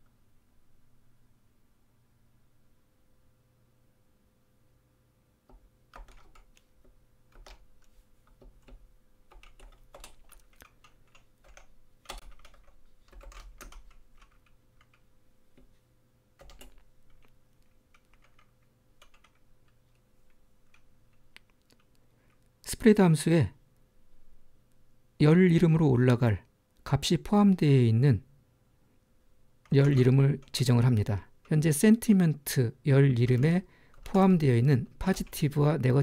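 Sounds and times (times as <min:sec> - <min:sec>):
computer keyboard key clicks: 0:08.3 - 0:15.0.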